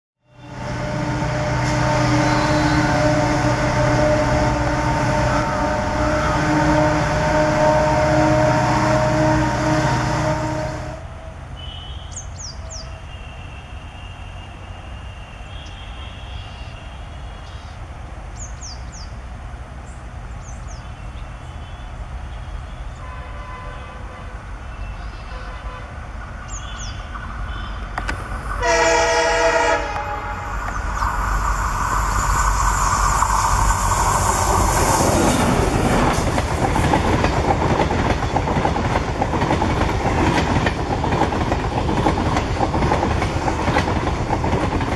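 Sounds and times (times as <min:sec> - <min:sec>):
diesel locomotive engine rumbling: 0:00.2 - 0:44.9
birds chirping: 0:26.4 - 0:28.1
steady whine: 0:29.6 - 0:36.2
locomotive diesel engine drone: 0:29.9 - 0:36.4.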